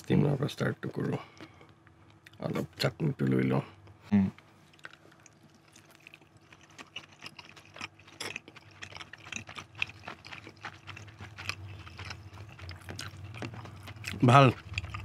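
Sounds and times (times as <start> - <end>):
steady low hum: 0.0 - 15.0
person chewing with wet smacks: 4.6 - 15.0.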